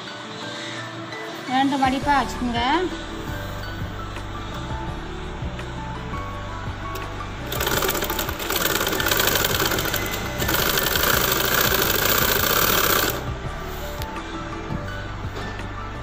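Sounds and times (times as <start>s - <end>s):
sewing machine stitching: 7.5s - 13.2s.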